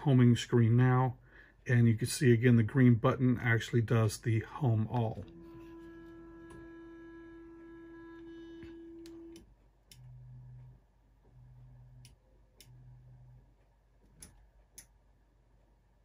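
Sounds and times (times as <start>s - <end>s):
stepper motor whine: 5.0s - 13.4s
short low motor hums: 5.0s - 13.5s.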